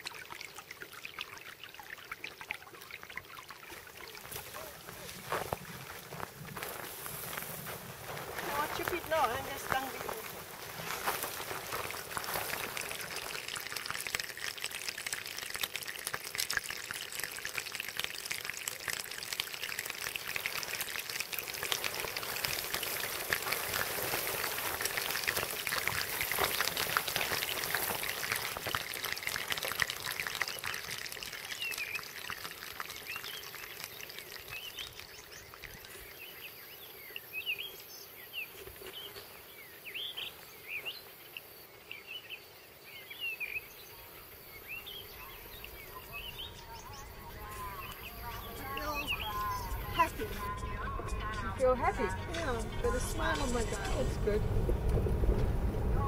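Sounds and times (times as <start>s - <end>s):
dry reeds rustling against clothing: 4.2s - 13.9s, 20.5s - 30.7s.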